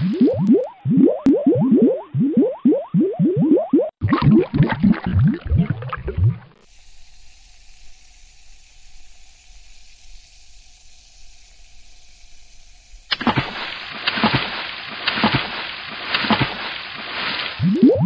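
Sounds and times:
water splashing and bubbling: 0.0 - 6.6, 13.1 - 18.0
faint steady hiss: 6.6 - 14.0.

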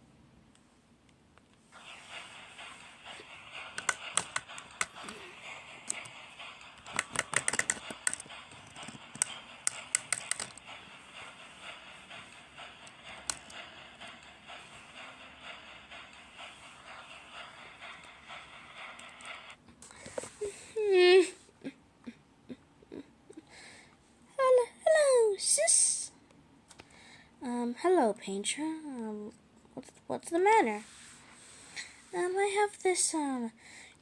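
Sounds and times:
toy train clicking over points: 2.0 - 19.6.

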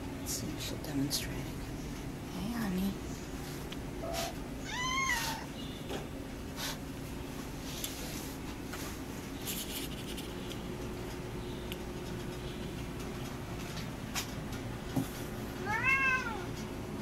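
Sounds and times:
steady low hum: 0.0 - 17.0
cat meowing: 4.0 - 5.5, 15.6 - 16.5.

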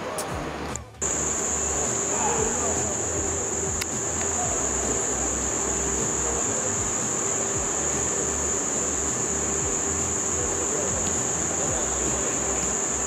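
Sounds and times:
insects chirring: 1.0 - 13.0.

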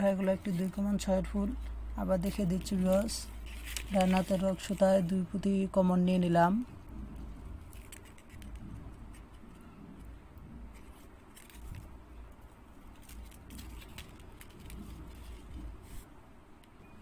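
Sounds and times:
rustling of bead strand: 0.3 - 5.1, 10.7 - 16.1.

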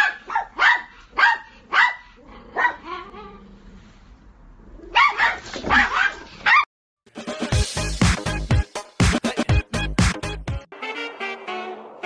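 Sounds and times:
dog barking: 0.0 - 3.0, 4.9 - 6.7.

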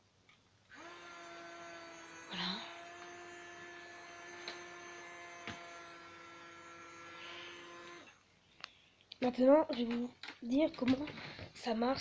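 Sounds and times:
small electric motor humming: 0.7 - 8.2.

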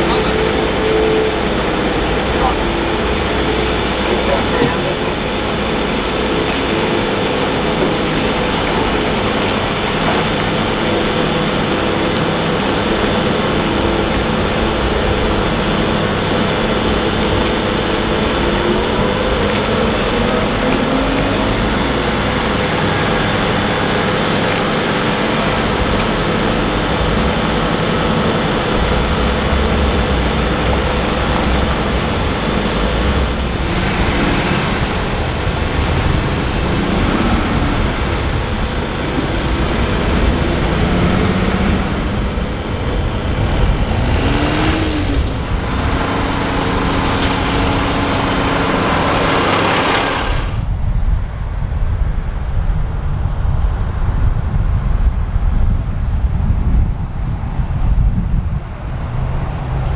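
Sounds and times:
heavy truck engine running: 0.0 - 59.9
tyres rolling on road: 0.0 - 59.9.

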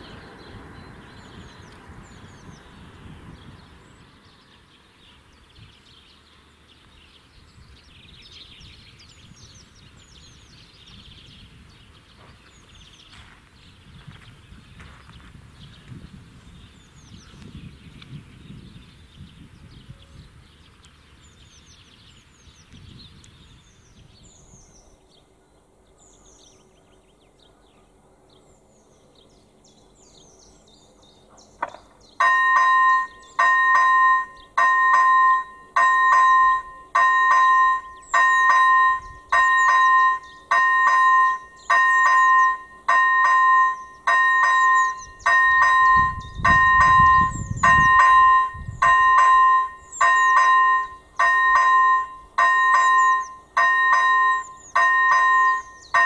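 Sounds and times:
two-tone electronic warning bell: 32.2 - 56.0.

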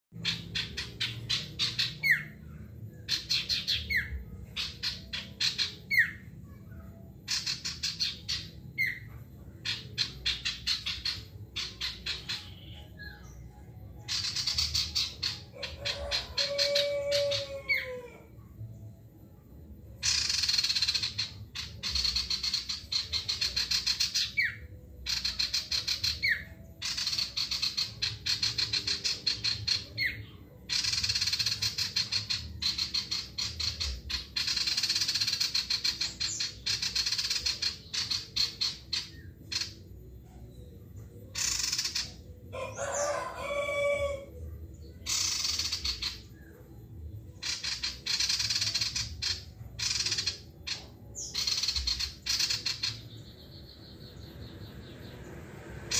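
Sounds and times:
bird chattering trills: 0.2 - 6.6, 7.2 - 13.2, 14.1 - 18.2, 20.0 - 39.9, 41.3 - 44.3, 44.9 - 46.5, 47.3 - 54.2
rooster crowing: 15.5 - 18.3, 42.5 - 44.4.

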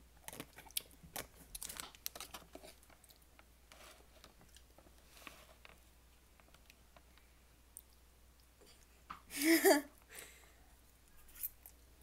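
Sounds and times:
soft chewing: 0.2 - 5.8, 6.4 - 9.0.

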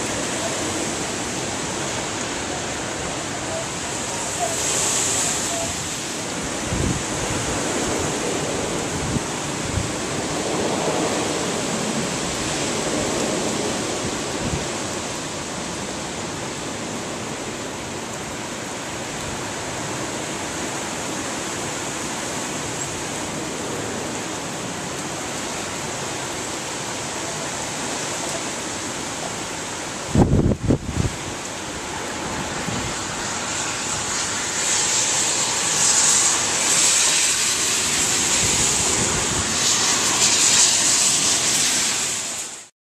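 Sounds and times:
wind gusts buffeting microphone: 0.0 - 42.5
heavy rain and wind hiss: 0.0 - 42.7.

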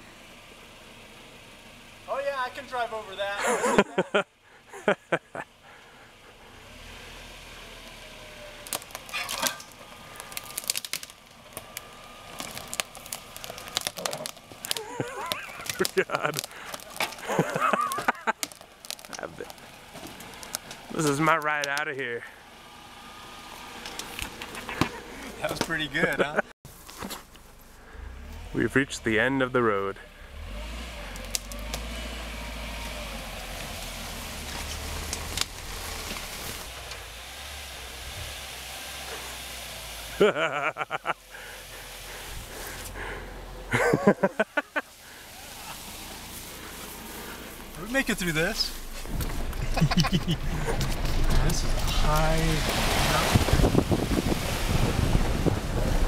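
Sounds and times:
vehicle engine low hum: 0.0 - 56.0
sticks and branches snapping: 8.6 - 21.8, 23.8 - 26.2, 31.1 - 32.0, 32.8 - 37.0
vegetation brushing: 8.8 - 21.4, 32.8 - 39.5, 43.8 - 54.6.

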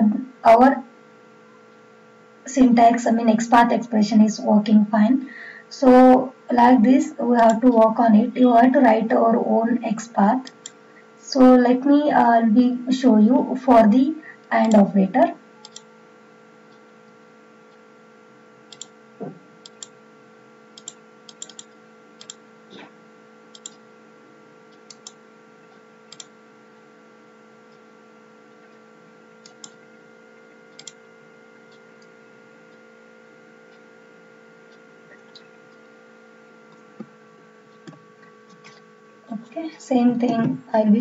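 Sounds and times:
steady electrical hum: 0.0 - 41.0
mouse and keyboard clicks: 15.6 - 15.9, 20.8 - 22.4.

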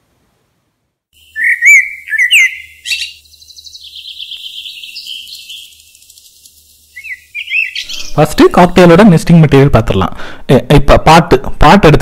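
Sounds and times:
buzzy bird twittering: 1.2 - 8.8
small bird chirping: 1.2 - 8.8.

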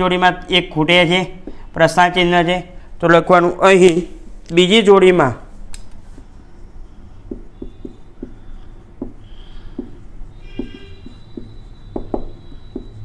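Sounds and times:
marker writing on whiteboard: 0.8 - 2.6, 6.0 - 13.0
faint marker squeak: 6.8 - 13.0.

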